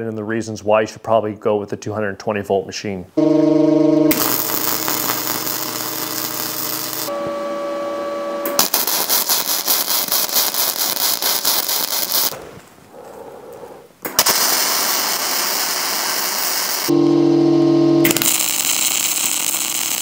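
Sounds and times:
welding arc crackling and hissing: 4.1 - 7.1, 8.5 - 12.4, 14.1 - 16.9, 18.0 - 20.0.

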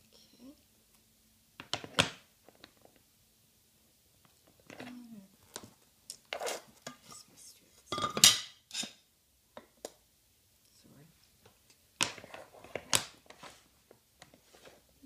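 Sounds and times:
glass and metal clinks and knocks: 7.9 - 9.0.

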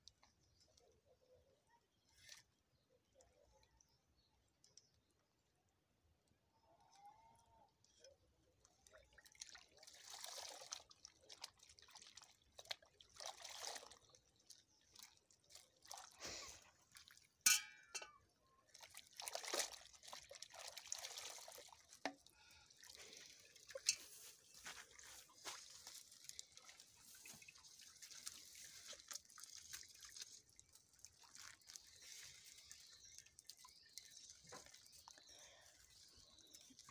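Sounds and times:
water splashing in a metal pot: 8.0 - 36.9.

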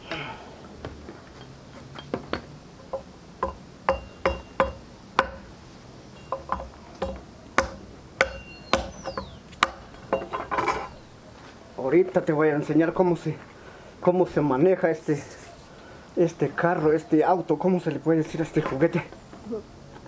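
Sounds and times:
hand tool knocking wood: 2.1 - 5.4, 6.3 - 10.9.

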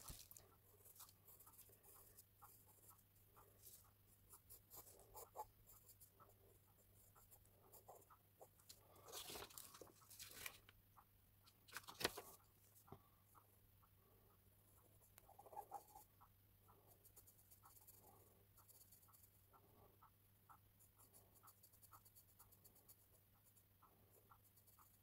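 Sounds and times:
pencil scratching on paper: 0.0 - 10.2, 14.7 - 16.1, 16.7 - 19.9, 20.6 - 25.0
paper rustle: 9.0 - 10.7, 11.6 - 12.4.

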